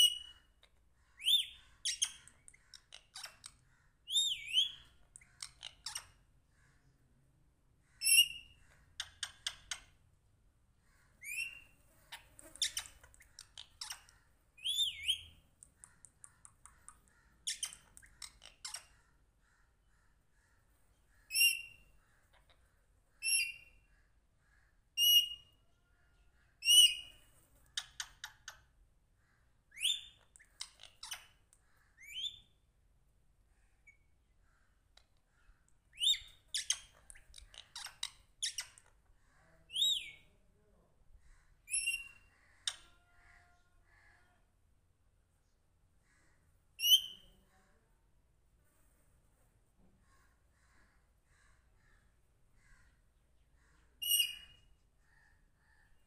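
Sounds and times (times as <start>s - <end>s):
parakeet clicking chatter: 12.2s - 19.0s.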